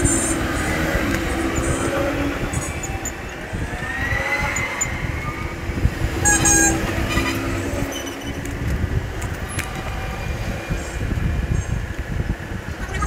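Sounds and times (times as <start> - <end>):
traffic rumble: 0.0 - 13.0
high-pitched horn toot: 6.2 - 8.4.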